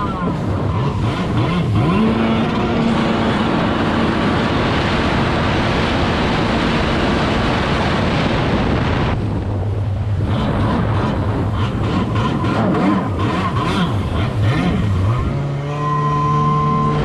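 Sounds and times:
jet ski engine at high revs: 0:00.0 - 0:17.0
rush of spray and wind: 0:00.0 - 0:17.0.

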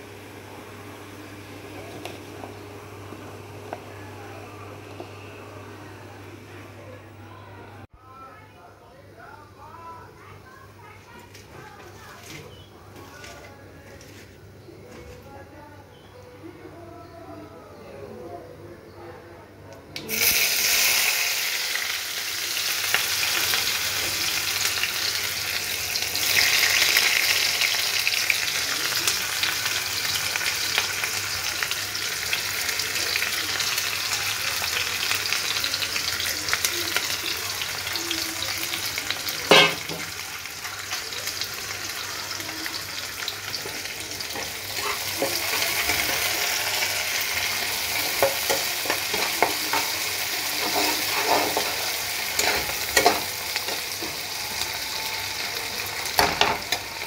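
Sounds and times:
onions sizzling in a pan: 0:20.0 - 0:57.0.

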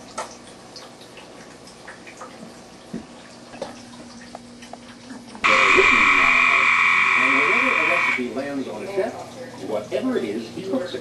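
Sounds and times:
tree frog trilling: 0:05.4 - 0:08.3.

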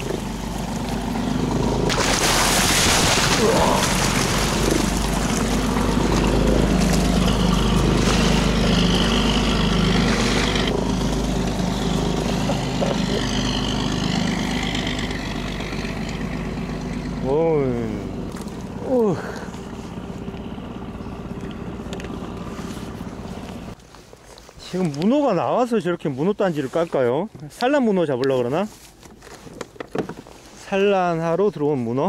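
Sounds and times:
rushing water: 0:00.0 - 0:14.4
boat motor running: 0:00.0 - 0:23.8.

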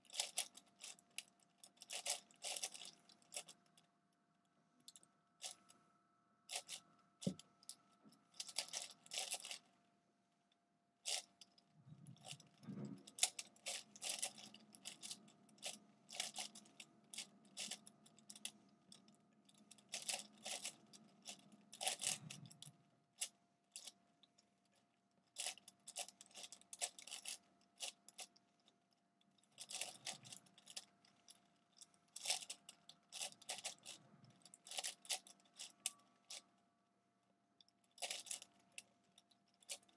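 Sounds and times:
puzzle cube clicking and clattering: 0:01.8 - 0:03.5, 0:08.4 - 0:09.6, 0:12.2 - 0:18.5, 0:19.8 - 0:22.5, 0:32.2 - 0:36.4, 0:38.0 - 0:38.4.

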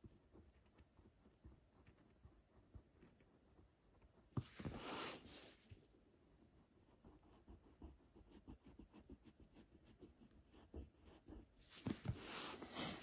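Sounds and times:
pencil scratching on paper: 0:04.1 - 0:05.6, 0:06.5 - 0:13.0
paper rustling and sliding: 0:04.4 - 0:05.5, 0:11.7 - 0:13.0.

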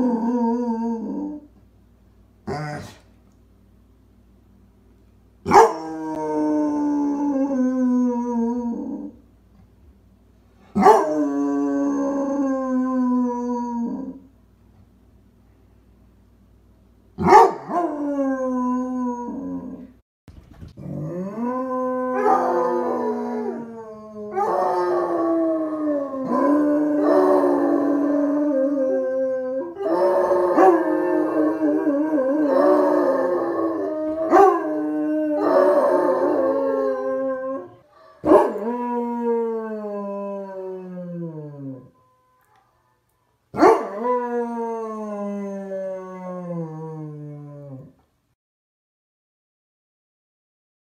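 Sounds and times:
dog howling: 0:00.0 - 0:01.5, 0:05.5 - 0:09.2, 0:10.8 - 0:14.2, 0:17.2 - 0:19.9, 0:20.9 - 0:42.0, 0:43.6 - 0:48.0.

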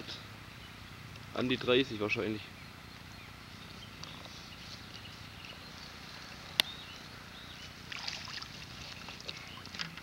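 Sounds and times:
crackling rustles: 0:07.6 - 0:10.0.

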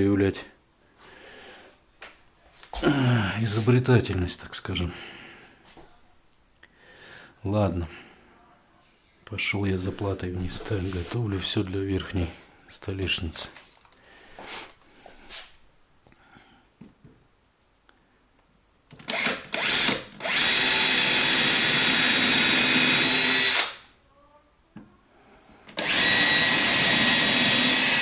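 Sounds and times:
cordless drill boring into wood: 0:19.0 - 0:23.8, 0:25.7 - 0:28.0.

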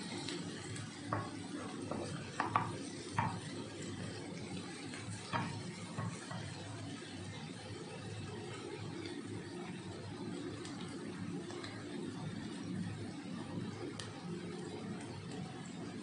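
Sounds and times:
wooden spoon scraping a pan: 0:00.0 - 0:06.8.

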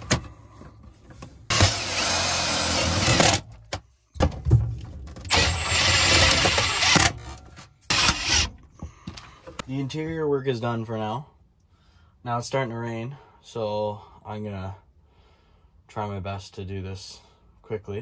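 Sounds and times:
cordless drill on sheet metal: 0:01.5 - 0:03.5, 0:05.3 - 0:08.6.

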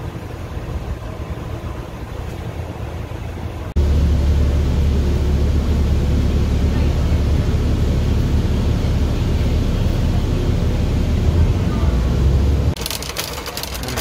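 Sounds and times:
bus engine and road noise: 0:00.0 - 0:14.0.

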